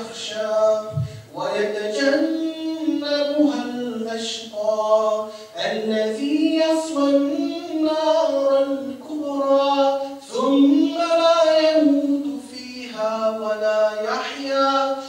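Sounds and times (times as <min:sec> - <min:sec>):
person reciting melodically: 0:00.0 - 0:15.0
breaths: 0:00.9 - 0:01.3, 0:05.2 - 0:05.6, 0:10.0 - 0:10.2.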